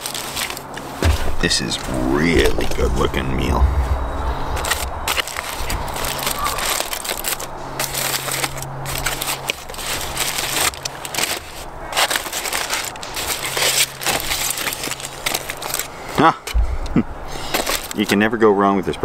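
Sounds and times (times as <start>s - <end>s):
aluminium foil crinkling: 0.0s - 1.0s, 4.6s - 16.2s, 17.4s - 18.2s.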